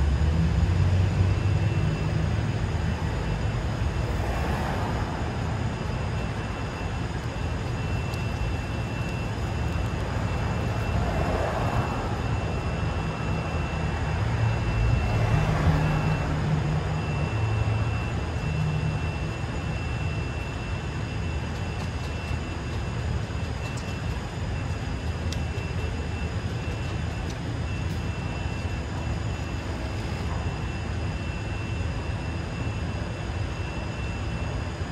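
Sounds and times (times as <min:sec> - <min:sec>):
vehicles passing: 0:00.0 - 0:19.8
traffic rumble: 0:00.0 - 0:31.5
faint high whine: 0:00.0 - 0:34.9.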